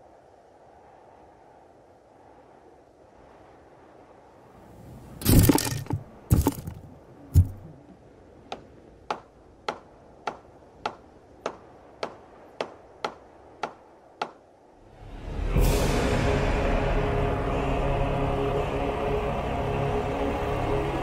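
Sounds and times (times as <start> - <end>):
heavy impacts: 5.2 - 7.7.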